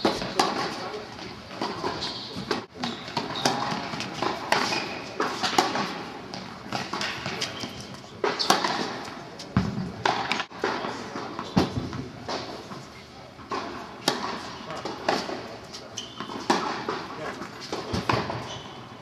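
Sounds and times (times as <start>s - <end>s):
tennis ball struck by rackets: 13.5s - 15.4s.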